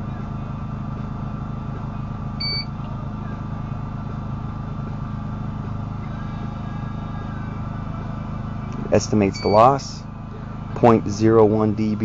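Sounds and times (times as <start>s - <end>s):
steady machine hum: 0.0s - 12.0s
short electronic beep: 2.4s - 2.7s, 9.3s - 9.8s.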